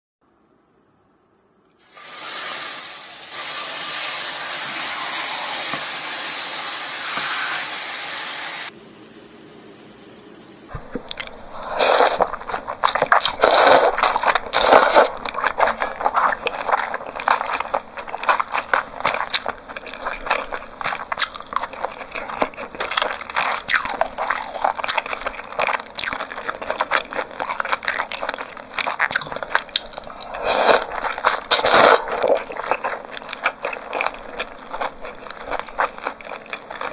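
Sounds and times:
meat sizzling in a pan: 1.9 - 8.7
biting and chewing meat: 10.7 - 36.9
slurping noodles: 11.0 - 36.9.

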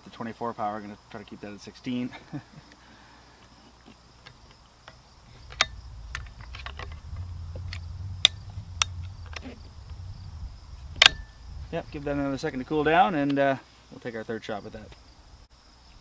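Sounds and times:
low rumble: 5.2 - 13.1.

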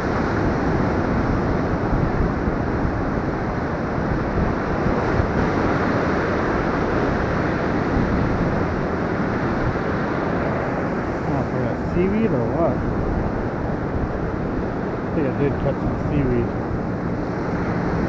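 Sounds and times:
surf washing up beach: 0.0 - 18.0
wind buffeting microphone: 0.0 - 18.0.

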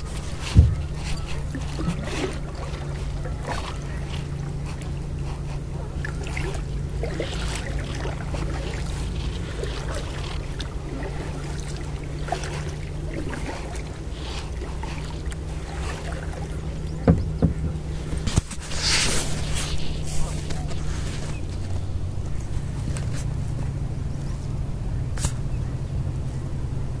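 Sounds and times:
water dripping and splashing: 0.0 - 21.8
steady low rumble: 0.0 - 27.0
sharp knocks: 0.5 - 2.0, 17.0 - 17.9.

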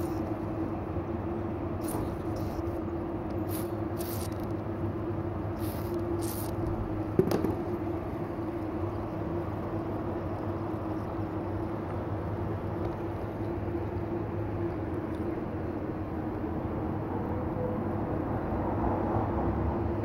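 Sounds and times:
steady mechanical hum: 0.0 - 20.0
short high hisses: 3.5 - 4.5, 5.6 - 6.6.

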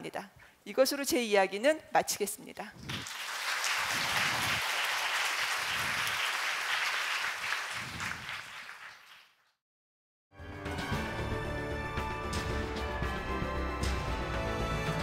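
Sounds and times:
large audience applauding: 2.9 - 9.5.

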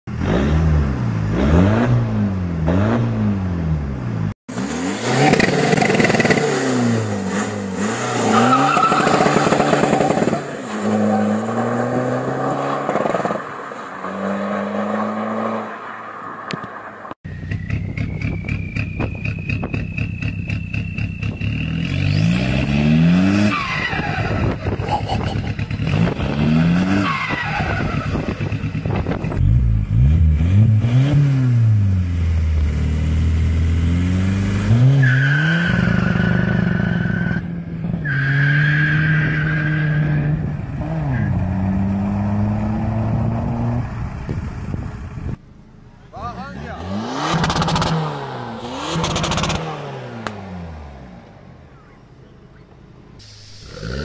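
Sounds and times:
diesel engine revving hard: 0.1 - 3.9, 4.5 - 13.4, 21.2 - 44.0, 46.3 - 51.2, 53.2 - 54.0
high whistle: 17.3 - 21.8.

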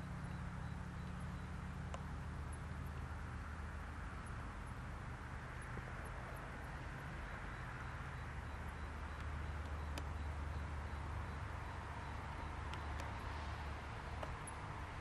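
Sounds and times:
continuous hiss: 0.0 - 15.0
faint sharp click: 9.2 - 10.1.

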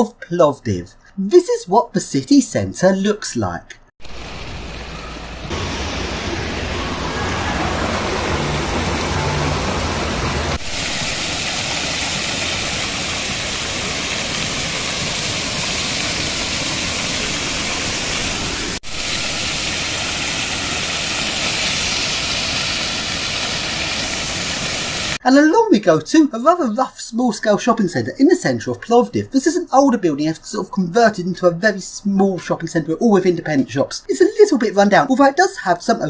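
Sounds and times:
fountain jets falling into basin: 4.0 - 25.2
small water jet splashing: 4.0 - 25.2.

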